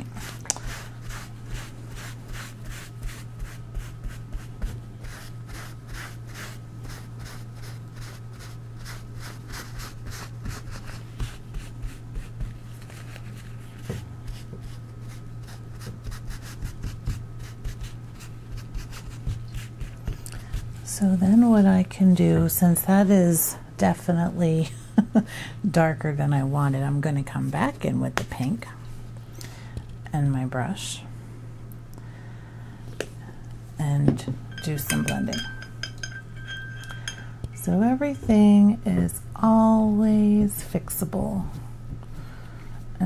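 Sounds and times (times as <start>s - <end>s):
steady low hum: 0.0s - 43.0s
paper towel scrubbing paper: 0.2s - 20.1s.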